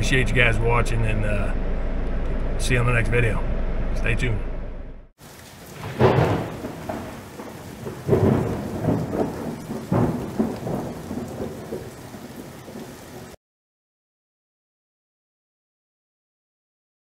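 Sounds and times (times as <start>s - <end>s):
deep rolling rumble: 0.0s - 5.1s.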